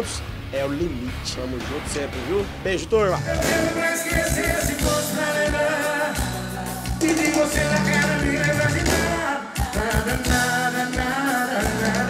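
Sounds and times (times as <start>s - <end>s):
drums: 0.0s - 12.0s
man singing long notes: 3.2s - 12.0s.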